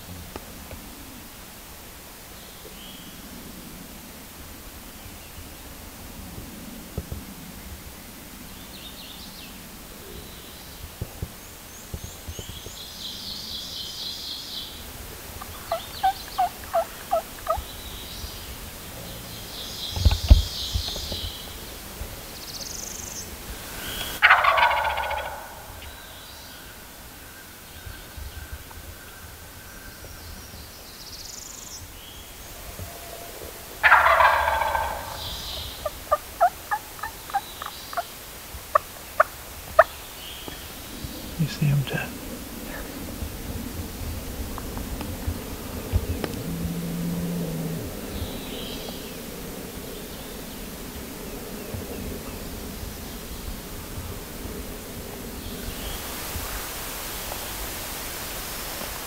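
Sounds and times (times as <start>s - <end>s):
turkey gobbling: 15.4s - 17.8s, 24.0s - 25.9s, 33.2s - 40.7s.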